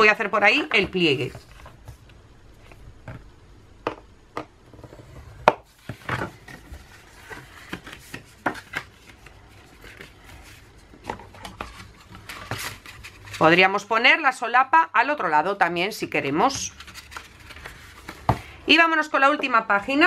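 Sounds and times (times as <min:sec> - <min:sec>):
paper rustling: 0:05.9 - 0:13.5, 0:16.6 - 0:18.4.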